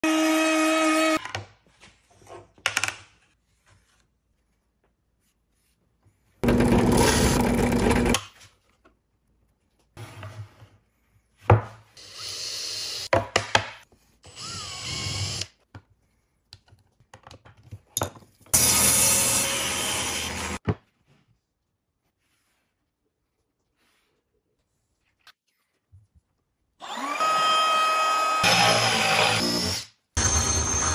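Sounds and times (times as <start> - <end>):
power drill boring through plate: 6.4 - 8.2, 14.3 - 15.5, 18.6 - 20.6, 26.8 - 30.9.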